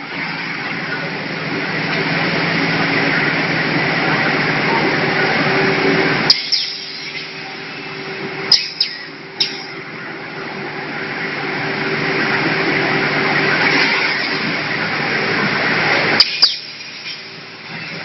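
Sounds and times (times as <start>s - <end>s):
machine humming and hissing: 0.0s - 18.0s
sharp machine clicks: 8.5s - 9.8s, 16.2s - 17.3s.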